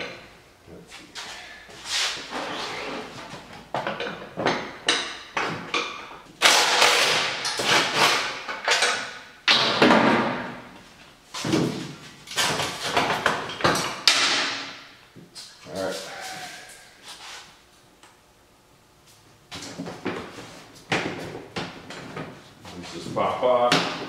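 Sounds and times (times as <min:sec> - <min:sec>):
clunks and knocks of parts: 0:03.1 - 0:10.8, 0:11.4 - 0:15.0, 0:19.5 - 0:22.6.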